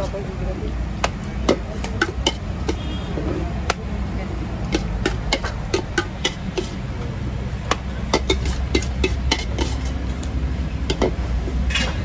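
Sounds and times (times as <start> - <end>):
low rumble of street traffic: 0.0 - 12.0
spoon clinking against steel pot: 1.4 - 2.9, 4.7 - 6.8, 8.1 - 10.0.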